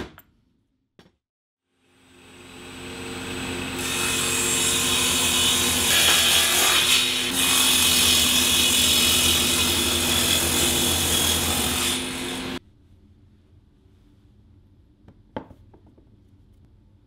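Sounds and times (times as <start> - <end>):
table saw motor hum: 1.7 - 12.6
saw blade cutting plywood: 3.5 - 12.6.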